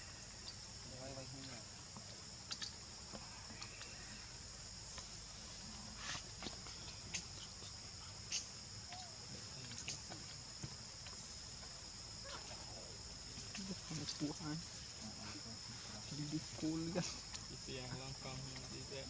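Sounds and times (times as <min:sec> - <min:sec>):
insect chorus: 0:00.0 - 0:19.0.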